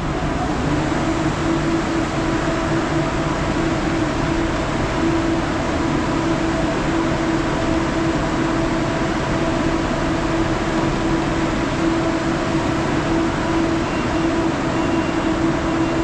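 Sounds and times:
machinery drone: 0.0 - 16.0.

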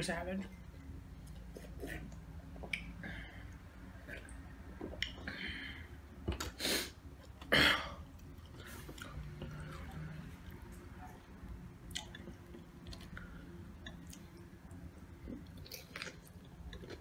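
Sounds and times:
loud breath bursts: 6.6 - 7.0.

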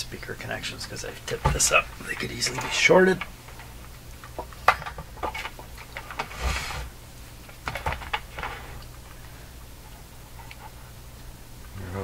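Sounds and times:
faint low hum: 0.0 - 12.0
brief scrape: 6.3 - 6.9.

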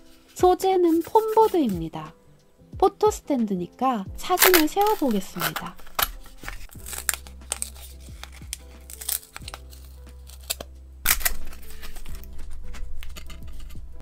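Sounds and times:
background music: 0.0 - 14.0
foam board tearing clicks: 4.4 - 12.2.

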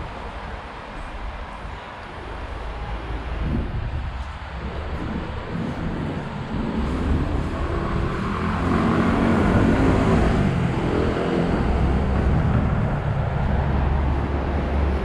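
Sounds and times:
deep low rumble: 3.4 - 15.0
vehicle engine passing: 4.9 - 15.0.

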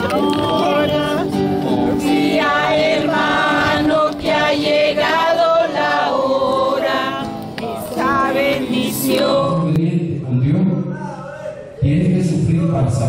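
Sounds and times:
group of people singing: 0.0 - 9.8.

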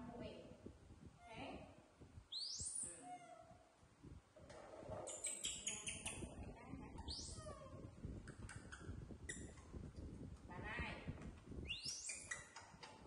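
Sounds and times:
baby monkeys squeaking: 5.1 - 9.6, 11.6 - 13.0.

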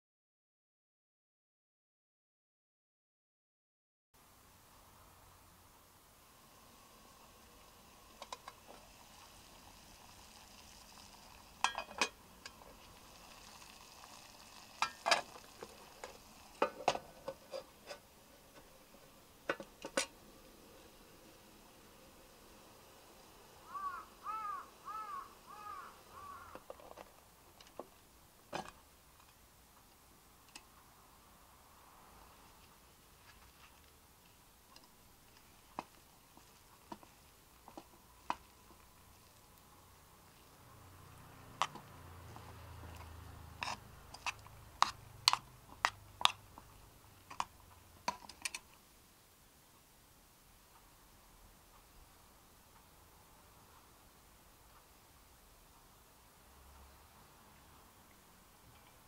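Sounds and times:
spoon scraping metal mess tin: 13.2 - 18.7, 43.6 - 46.4
crow cawing: 23.6 - 26.6.

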